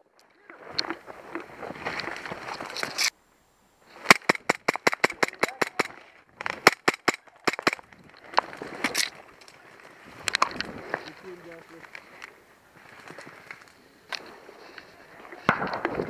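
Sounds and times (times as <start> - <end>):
airsoft gun firing: 4.1 - 6.0, 6.6 - 7.8.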